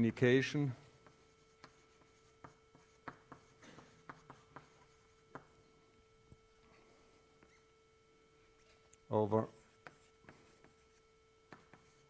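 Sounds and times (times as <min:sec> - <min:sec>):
chalk writing on a chalkboard: 0:00.8 - 0:05.5, 0:09.5 - 0:12.0.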